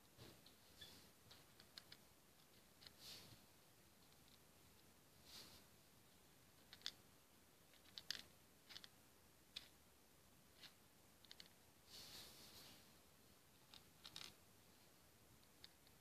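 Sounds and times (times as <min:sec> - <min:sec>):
soft rustle: 0:00.0 - 0:07.0, 0:10.5 - 0:16.0
plastic beads clicking onto pegboard: 0:06.6 - 0:07.0, 0:07.7 - 0:09.8, 0:10.6 - 0:11.6, 0:13.7 - 0:14.4.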